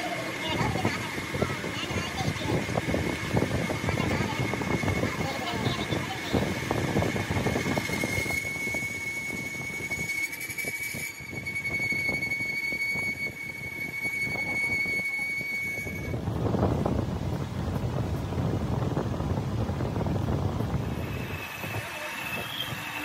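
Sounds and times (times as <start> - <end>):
high-pitched machining squeal: 0.0 - 16.2, 20.8 - 23.0.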